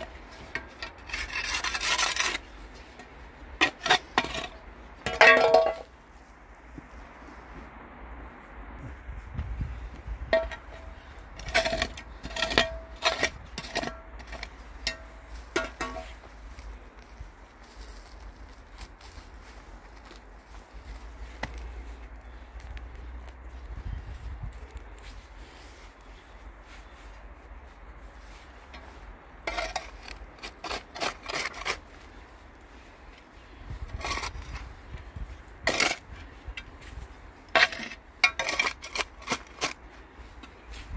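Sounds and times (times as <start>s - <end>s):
metal scoop scraping dirt and stone: 0.0s - 6.0s, 10.3s - 16.6s, 28.2s - 40.9s.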